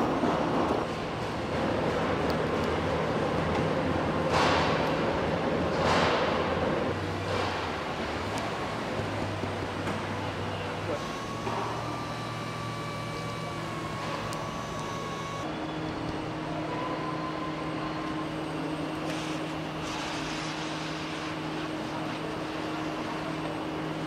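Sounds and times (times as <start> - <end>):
factory machinery hum: 0.0 - 24.0.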